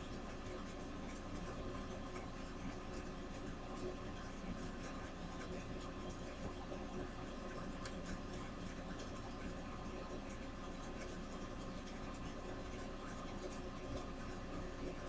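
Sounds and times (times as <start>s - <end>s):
low hum and hiss: 0.0s - 15.0s
paintbrush ticks and scratches: 0.1s - 15.0s.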